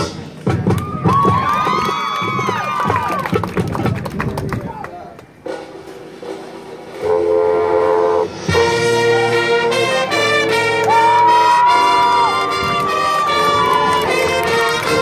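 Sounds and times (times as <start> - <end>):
marching band brass chords: 5.3 - 15.0
high sliding brass note: 7.0 - 15.0.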